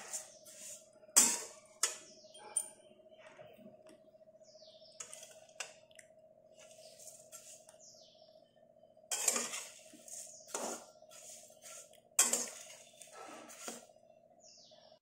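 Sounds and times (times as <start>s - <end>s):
metal spatula scraping a steel pan: 0.0s - 2.1s, 5.0s - 5.4s, 6.7s - 7.6s, 9.1s - 13.9s.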